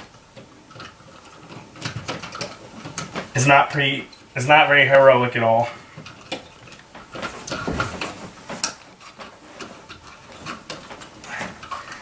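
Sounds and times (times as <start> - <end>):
cable clicking and scraping in box: 6.0 - 12.0.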